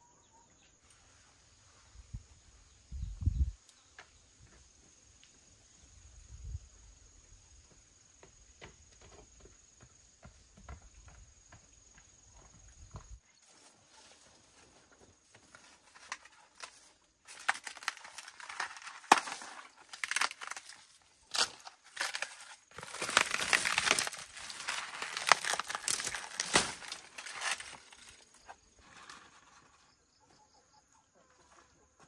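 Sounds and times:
dry vines crackling and snapping: 0:15.6 - 0:29.4.

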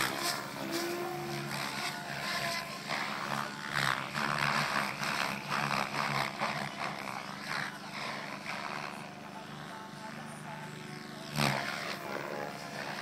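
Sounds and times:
rotor blades swooshing: 0:00.0 - 0:09.1
steady helicopter hum: 0:00.0 - 0:13.0.

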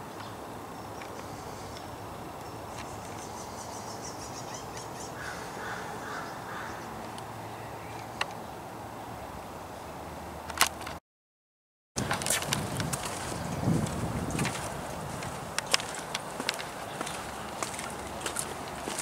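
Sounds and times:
birds calling: 0:00.0 - 0:08.6, 0:12.0 - 0:19.0.

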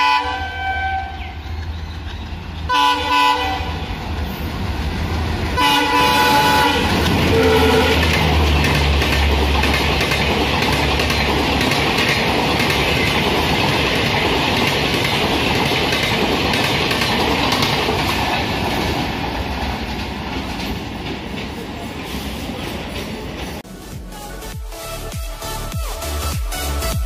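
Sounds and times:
train wheels clattering over rail joints: 0:06.9 - 0:23.6.

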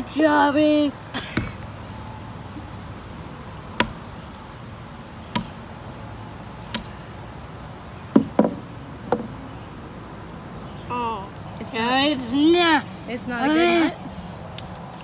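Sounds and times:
hammer striking on wood: 0:05.3 - 0:05.6, 0:08.1 - 0:09.3.

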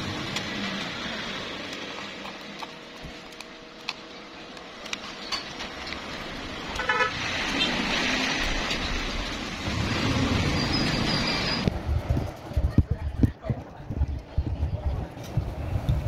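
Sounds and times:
street traffic: 0:00.0 - 0:16.0
vehicle horn toot: 0:06.8 - 0:07.2.

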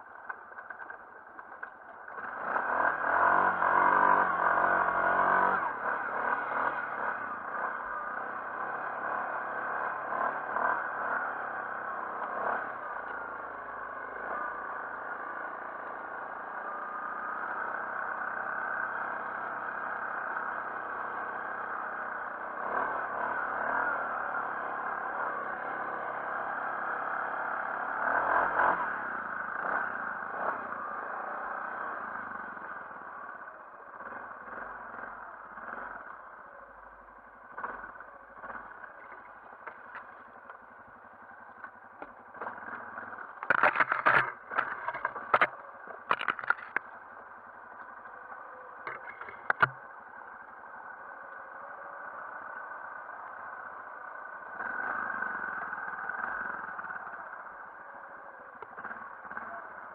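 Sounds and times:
atv engine running: 0:00.0 - 0:59.9
sharp knocks and clatter: 0:43.4 - 0:46.9, 0:48.8 - 0:49.8.

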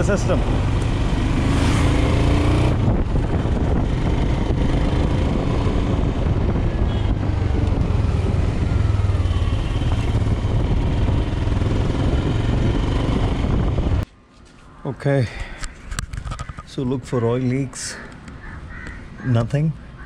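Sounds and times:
motorcycle engine running: 0:00.0 - 0:14.0
wind on microphone: 0:00.0 - 0:14.1
road rumble: 0:00.0 - 0:20.0.

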